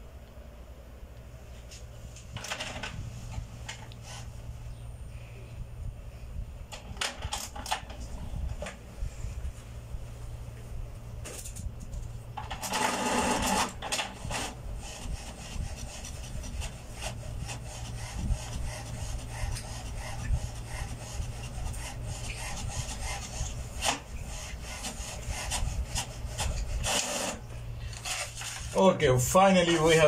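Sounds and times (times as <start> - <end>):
printer drawing paper whir: 2.4 - 4.4, 12.4 - 30.0
print carriage rasping: 12.4 - 27.4.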